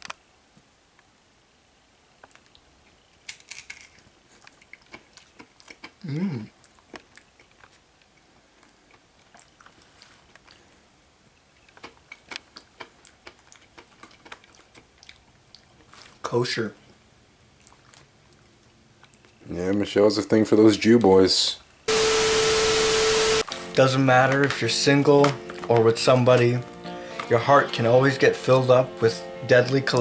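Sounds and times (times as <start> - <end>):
chewing crunchy chickpeas: 2.2 - 16.2, 17.4 - 19.9
person humming: 6.0 - 6.5.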